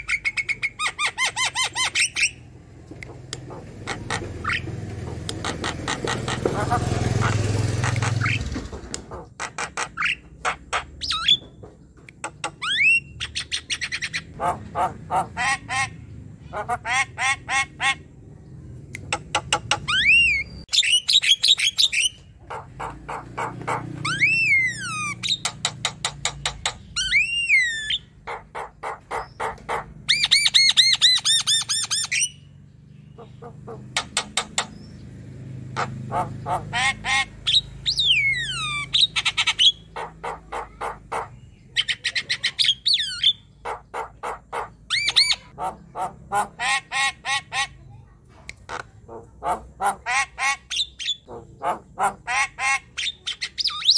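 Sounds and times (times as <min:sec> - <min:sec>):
bird singing: 0:09.5 - 0:46.5.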